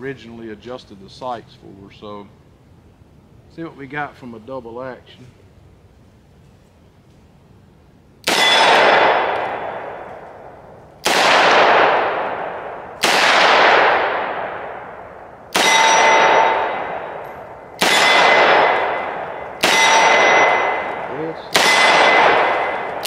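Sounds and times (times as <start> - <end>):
revolver gunshots with ringing tail: 8.2 - 23.0.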